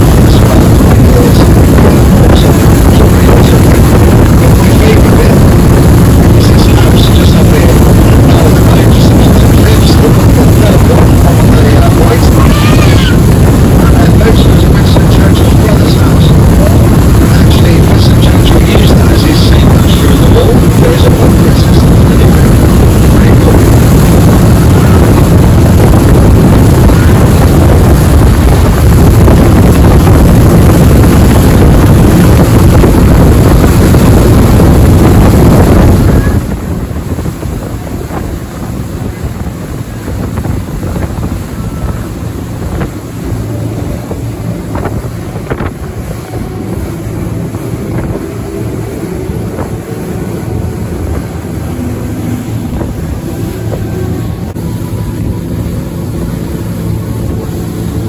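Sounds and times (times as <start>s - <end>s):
boat engine hum: 0.0s - 58.0s
water rushing past hull: 0.0s - 58.0s
wind buffeting microphone: 0.0s - 58.0s
water slapping against hull: 19.6s - 58.0s.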